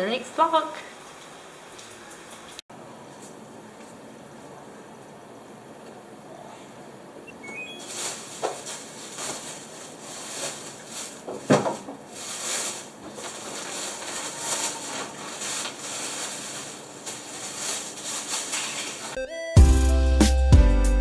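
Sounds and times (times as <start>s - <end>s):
plastic bag rustling: 7.4s - 19.2s.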